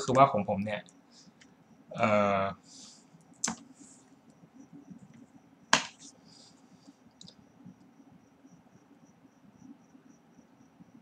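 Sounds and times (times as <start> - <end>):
faint high ticks: 7.1 - 7.9.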